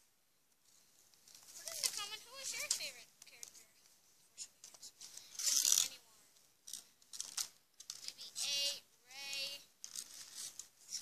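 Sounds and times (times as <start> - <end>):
plastic crinkling: 0.6 - 3.9, 6.6 - 8.4, 9.3 - 11.0.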